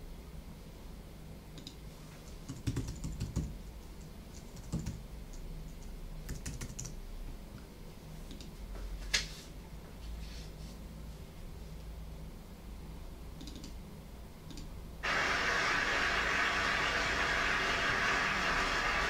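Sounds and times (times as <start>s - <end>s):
computer keyboard typing: 1.6s - 7.0s, 13.4s - 13.8s.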